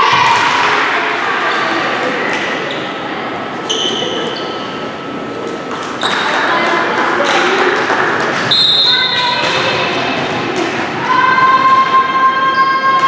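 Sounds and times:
crowd cheering and calling out: 0.0s - 2.6s, 6.0s - 13.0s
sneaker squeaks: 2.6s - 3.0s, 3.6s - 5.1s, 6.0s - 6.5s.

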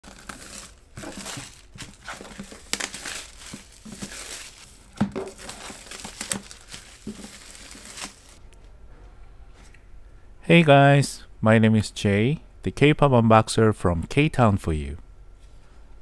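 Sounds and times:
plastic shrink-wrap crinkling: 0.0s - 8.4s.

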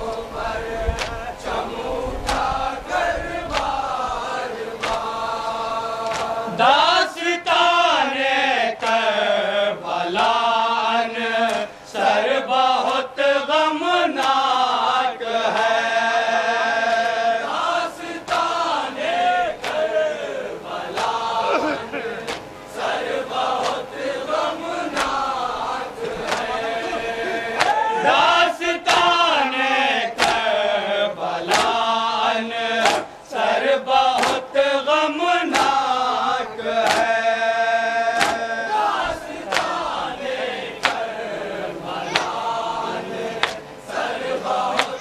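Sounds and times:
men chanting a lament: 0.0s - 45.0s
palms slapping chests: 38.2s - 38.5s.

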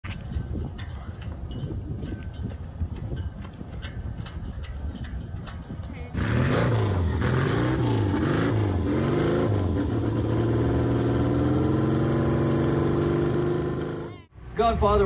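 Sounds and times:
motorcycle engine revving: 6.2s - 14.3s.

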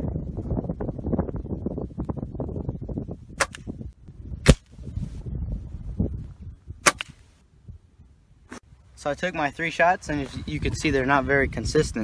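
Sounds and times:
air rifle shots: 3.4s - 3.7s, 4.4s - 4.7s, 6.8s - 7.2s.

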